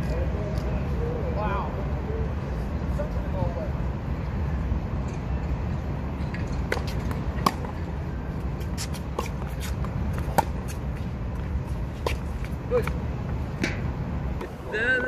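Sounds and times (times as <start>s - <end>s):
low rumble of wind or traffic: 0.0s - 15.0s
tennis ball struck by rackets: 6.7s - 7.8s, 8.6s - 10.8s.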